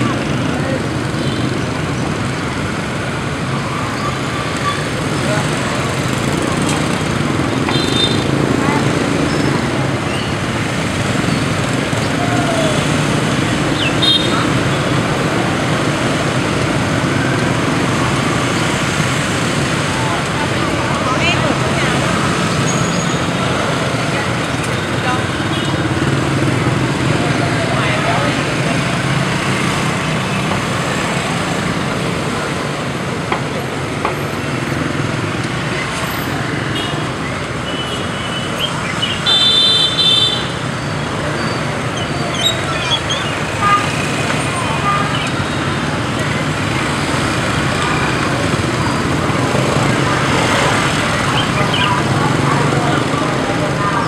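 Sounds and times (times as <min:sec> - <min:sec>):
motorbike and scooter traffic: 0:00.0 - 0:54.0.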